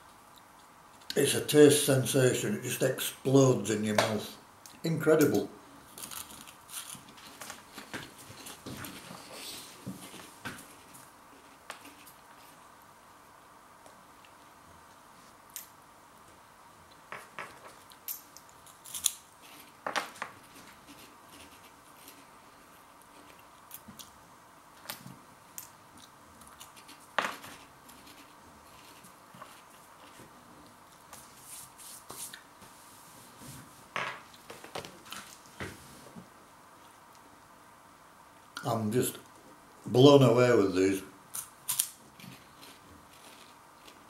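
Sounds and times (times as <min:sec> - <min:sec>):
crunching snack chewing: 0:05.9 - 0:09.1, 0:26.0 - 0:30.2, 0:41.4 - 0:44.0.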